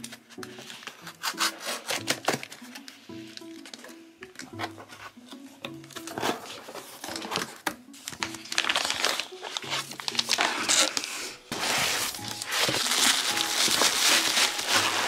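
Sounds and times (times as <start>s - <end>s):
light background music: 0.0s - 15.0s
plastic packaging crinkling: 6.0s - 15.0s.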